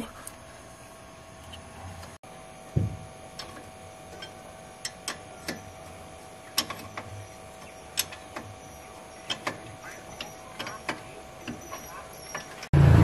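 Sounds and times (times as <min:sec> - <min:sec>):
dull knock: 0:02.8 - 0:03.0
tools clicking and tapping: 0:06.6 - 0:07.1, 0:08.0 - 0:08.5, 0:09.3 - 0:12.7.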